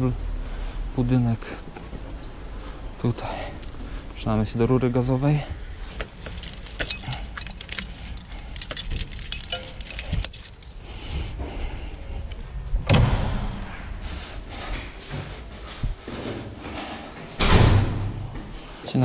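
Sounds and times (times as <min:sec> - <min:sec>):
bicycle lock jangling and clicking: 0:05.9 - 0:11.0
loud thud: 0:12.8 - 0:13.9, 0:17.4 - 0:18.3.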